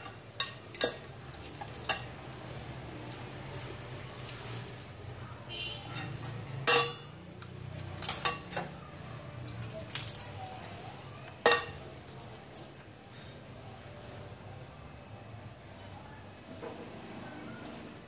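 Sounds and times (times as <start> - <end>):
kitchenware clinking: 0.0 - 2.3, 5.8 - 8.9, 11.3 - 12.5.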